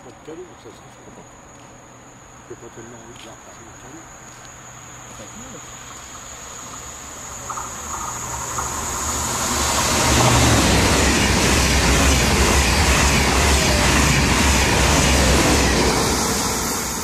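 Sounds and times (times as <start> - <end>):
high-speed train passing: 3.7 - 17.0
rushing air: 5.8 - 17.0.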